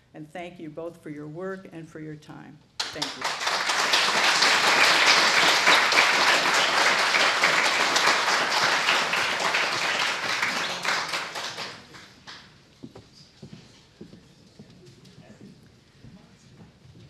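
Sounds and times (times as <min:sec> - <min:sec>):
audience applauding: 0:02.8 - 0:12.5.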